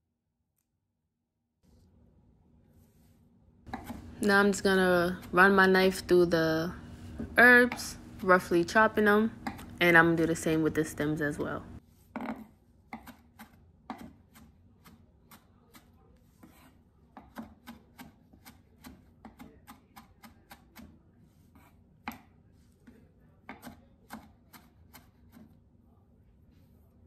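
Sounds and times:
knife chopping on wooden board: 3.7 - 4.1, 12.2 - 20.9, 23.5 - 25.6.

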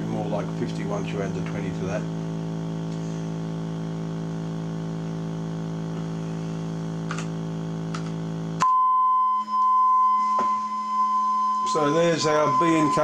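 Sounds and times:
low steady tone with overtones: 8.6 - 13.0
pure test tone: 8.6 - 13.0.

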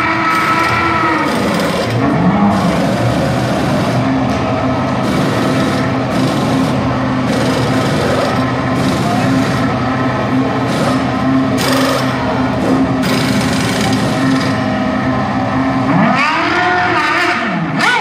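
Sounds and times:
pneumatic wheel gun whirr: 0.0 - 4.1, 5.0 - 9.8, 10.6 - 14.6
race car engine idling: 0.0 - 17.0.

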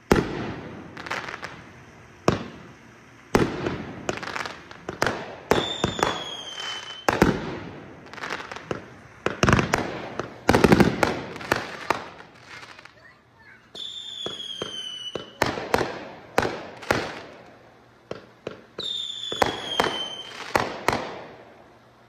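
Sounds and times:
fireworks bangs and pops: 0.0 - 21.5
firework whistle: 3.4 - 8.6, 13.5 - 17.3, 18.8 - 21.2.

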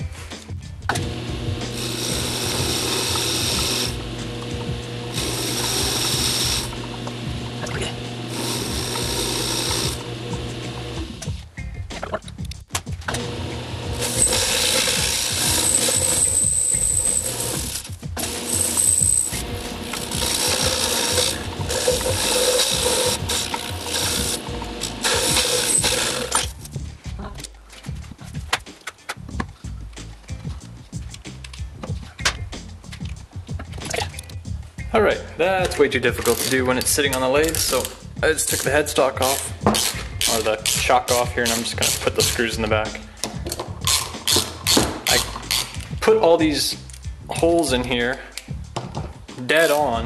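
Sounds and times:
lathe motor hum: 1.0 - 11.3, 13.1 - 26.5
lathe tool cutting metal hiss: 1.0 - 11.3, 13.2 - 26.5.

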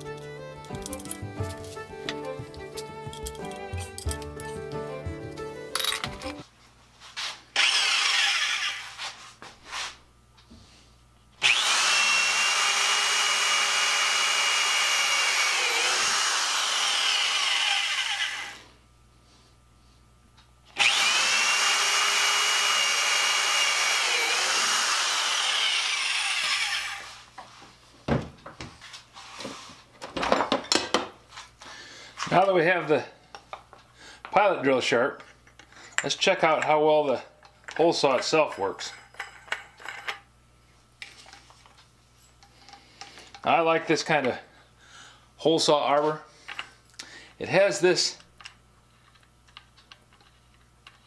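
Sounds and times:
electric drill drilling wood: 7.6 - 9.0, 11.4 - 18.7, 20.8 - 27.3.

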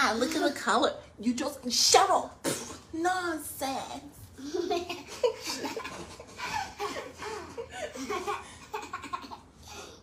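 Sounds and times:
woman laughing heartily: 4.5 - 9.5.

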